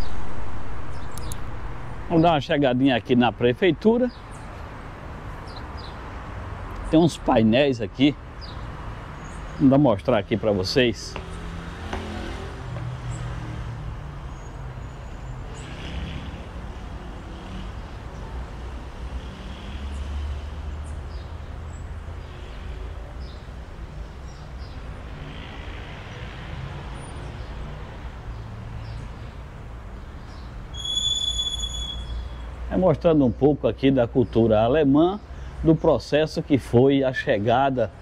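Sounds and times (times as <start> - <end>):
low rumble of city traffic: 0.0 - 38.0
high whistling tone: 30.8 - 32.2.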